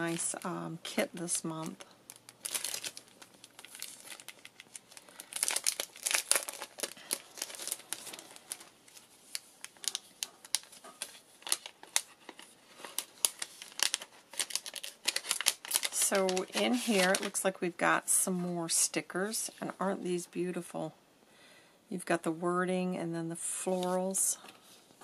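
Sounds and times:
plastic and paper crinkling: 0.0 - 17.6, 23.7 - 25.0.

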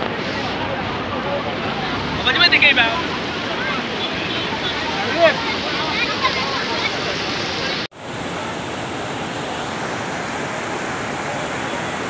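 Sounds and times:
crowd voices: 0.0 - 7.9
floodwater rushing and churning: 0.0 - 12.0.

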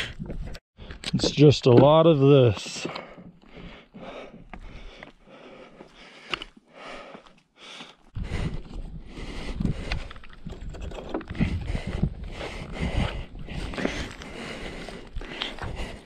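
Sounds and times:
runner breathing: 0.0 - 1.1, 2.7 - 16.0
wind buffeting microphone: 8.2 - 16.0.

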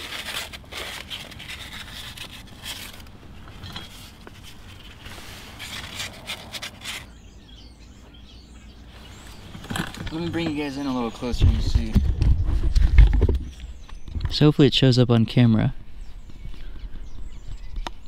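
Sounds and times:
sandpaper scraping steel shaft: 0.0 - 7.2.

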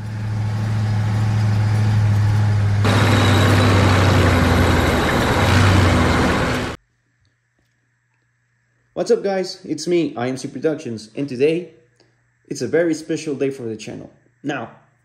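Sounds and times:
loud rushing noise: 0.0 - 6.8
tank engine drone: 0.0 - 6.8.

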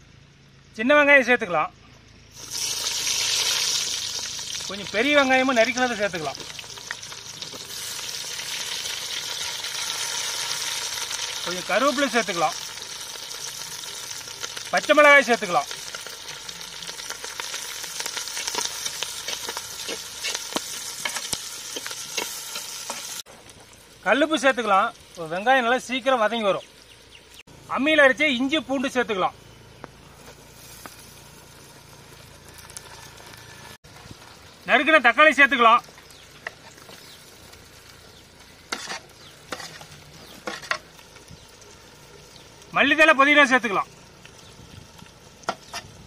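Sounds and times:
vegetables sizzling in hot oil: 2.3 - 27.6, 30.2 - 46.0
metal spatula scraping a pot: 18.4 - 23.1, 38.7 - 40.9
metal spatula scraping steel plate: 38.7 - 40.8.

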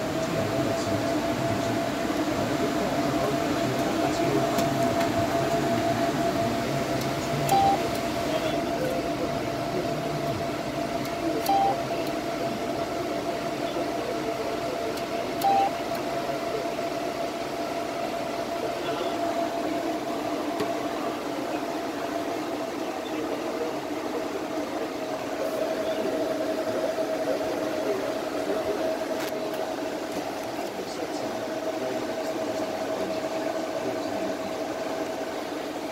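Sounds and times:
machine hum with whine: 0.0 - 35.9
short electronic beeps: 7.5 - 7.9, 11.5 - 11.8, 15.4 - 15.8.

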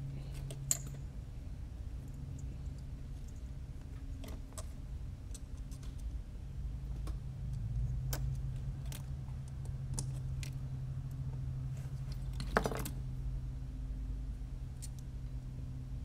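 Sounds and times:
steady low hum: 0.0 - 16.0
small parts clicking: 5.3 - 6.1.

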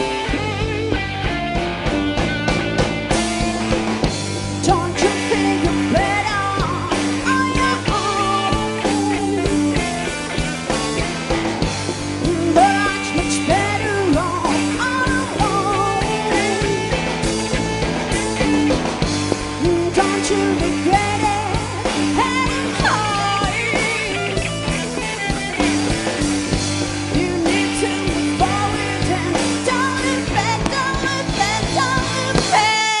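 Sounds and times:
drums: 0.0 - 33.0
electric guitar: 0.0 - 33.0
woman singing: 4.6 - 10.2, 12.1 - 17.6, 19.4 - 25.5, 26.7 - 33.0.

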